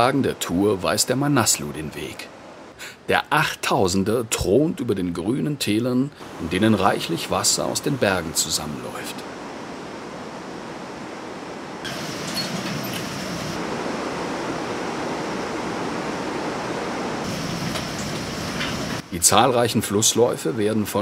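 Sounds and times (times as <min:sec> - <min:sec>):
white-water river rushing: 0:06.2 - 0:21.0.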